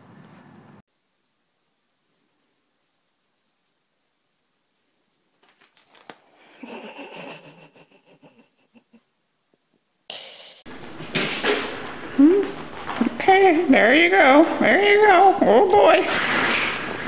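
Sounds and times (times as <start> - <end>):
background hiss: 0.0 - 10.7
kitten claws scratching jeans: 2.2 - 6.4.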